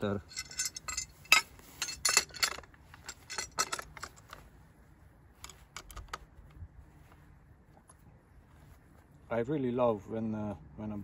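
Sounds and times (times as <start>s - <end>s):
light metallic clicks and clinks: 0.0s - 4.4s.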